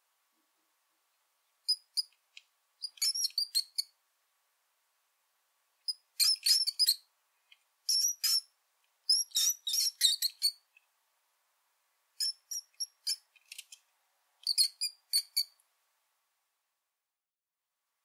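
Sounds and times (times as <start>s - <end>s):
mouse squeaking: 1.7s - 2.2s, 2.8s - 3.9s, 5.9s - 7.1s, 7.9s - 8.5s, 9.1s - 10.6s, 12.2s - 13.8s, 14.4s - 15.6s.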